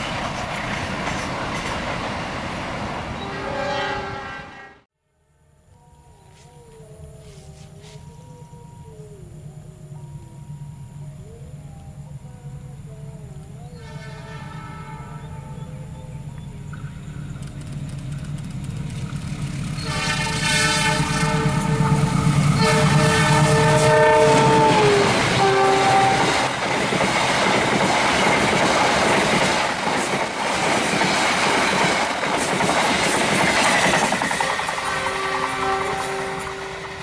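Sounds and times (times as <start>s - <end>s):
train coaches clattering past: 0.0s - 4.8s, 16.2s - 37.0s
locomotive air horn blasts: 3.2s - 4.9s, 13.8s - 15.6s, 19.8s - 26.5s, 34.4s - 37.0s
locomotive engine rumble: 5.9s - 33.5s.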